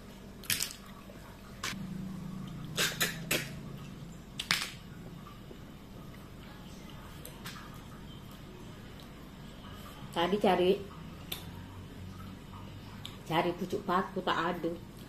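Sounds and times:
low hum: 1.2 - 7.1
mouth sucking and smacking: 2.5 - 3.6.

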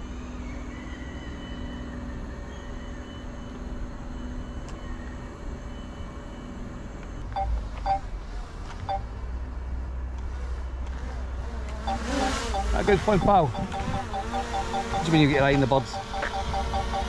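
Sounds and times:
drone propellers humming: 9.6 - 17.0.

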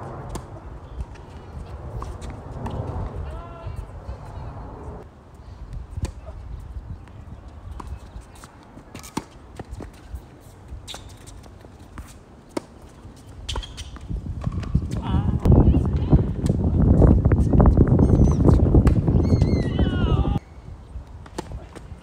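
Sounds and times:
low rumble: 0.0 - 5.0.

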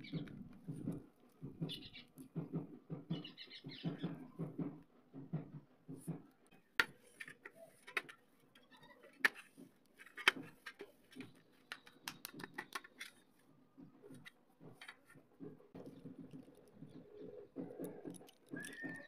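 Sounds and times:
clay squishing: 5.9 - 19.0
clicks and taps on metal: 10.2 - 19.0.

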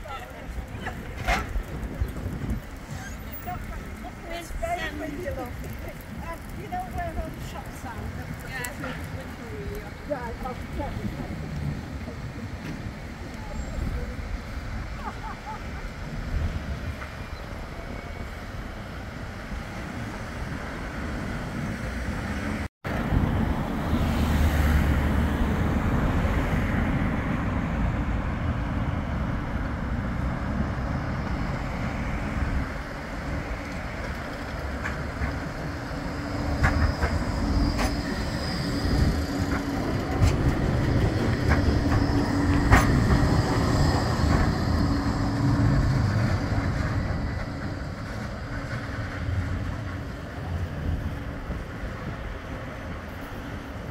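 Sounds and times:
wheels clicking over rails: 0.0 - 15.1, 31.2 - 53.9
tram rumbling along street track: 0.0 - 53.9.

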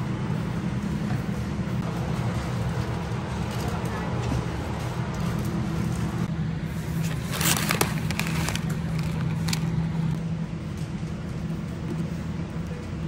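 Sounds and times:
store ambience hum: 0.0 - 13.0
plastic packaging crackling: 6.9 - 10.2.

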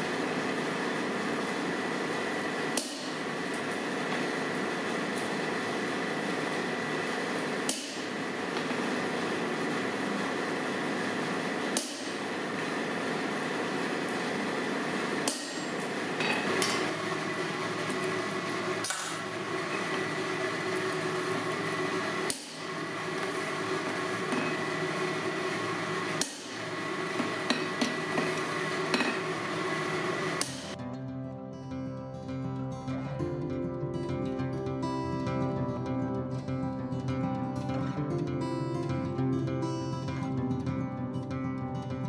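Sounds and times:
hammer striking metal punch: 2.8 - 3.3, 7.6 - 8.7, 11.7 - 12.3, 15.2 - 16.8, 22.3 - 22.8, 26.2 - 28.3.

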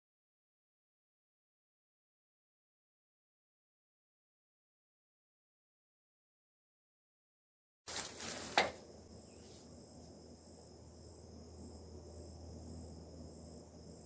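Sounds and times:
insects chirring: 7.9 - 14.0
low steady hum: 7.9 - 14.0.

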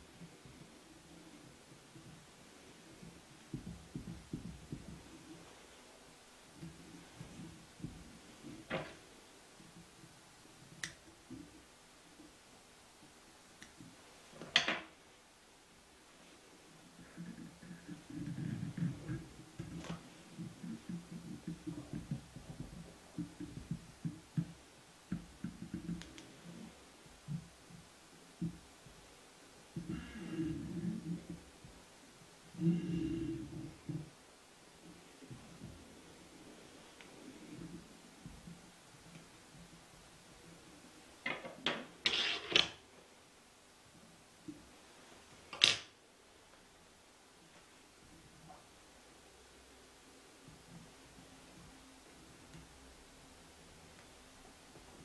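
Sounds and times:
soft handling thumps and rustles: 1.9 - 5.8
faint clicks: 10.6 - 11.4
tools rustling and scraping: 41.3 - 42.8.

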